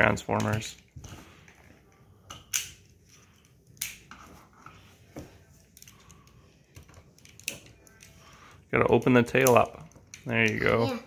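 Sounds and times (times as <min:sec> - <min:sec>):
plastic toy parts clicking: 0:05.8 - 0:08.1.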